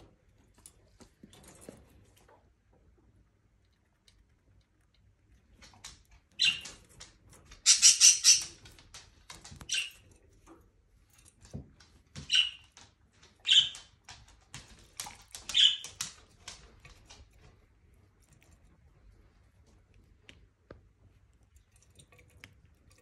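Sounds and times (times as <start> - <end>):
budgerigar chirping: 7.6 - 8.5, 13.4 - 13.8, 15.5 - 15.8.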